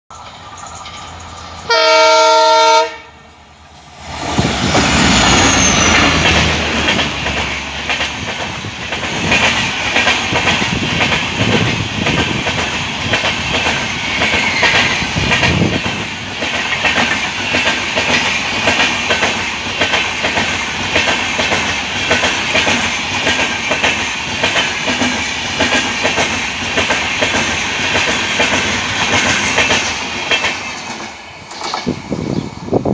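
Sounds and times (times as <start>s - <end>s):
train coaches rumbling: 0.1s - 32.9s
train horn blast: 1.7s - 3.2s
wheels clacking over rail joints: 4.0s - 32.4s.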